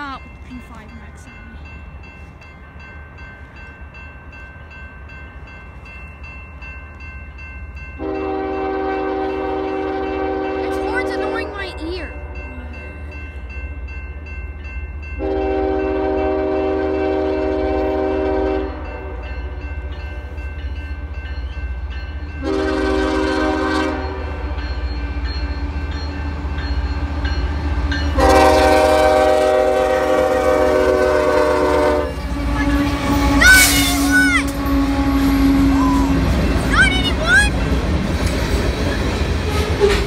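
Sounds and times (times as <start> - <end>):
crossing bell ringing: 0.0 - 40.0
locomotive air horn blasts: 8.0 - 11.6, 15.2 - 19.2, 22.4 - 24.5, 28.2 - 36.2.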